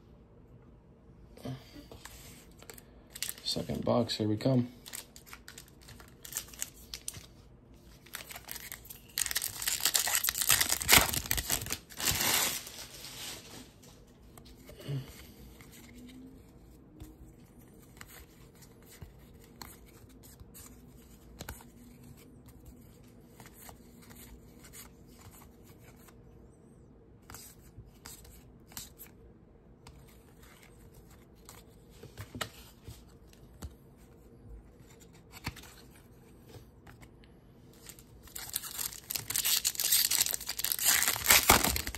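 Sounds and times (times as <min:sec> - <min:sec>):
cards being flipped through: 0:04.9 - 0:13.5, 0:34.7 - 0:37.1, 0:37.8 - 0:41.9
wrapper tearing with crinkly rip: 0:08.0 - 0:13.4, 0:37.9 - 0:41.9.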